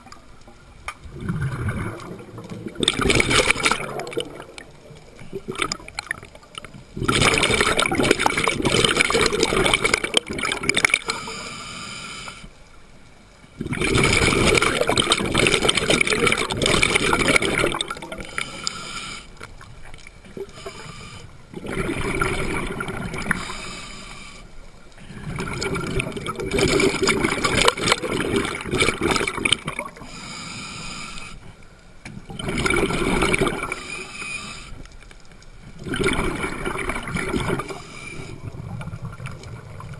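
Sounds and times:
underwater regulator exhaust bubbles: 1.0 - 11.3, 13.6 - 18.9, 20.3 - 24.2, 25.0 - 30.2, 32.3 - 34.7, 35.7 - 39.9.

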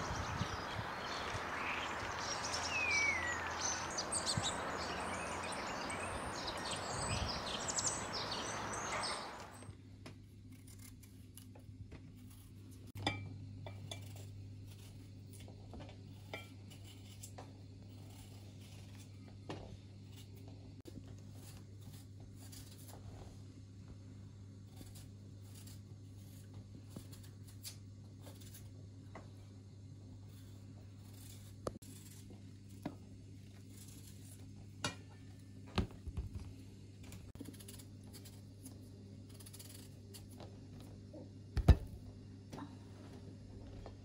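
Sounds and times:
birds chirping: 0.0 - 9.7
outdoor hiss: 0.0 - 9.7
knife trimming mushrooms: 10.4 - 11.6.

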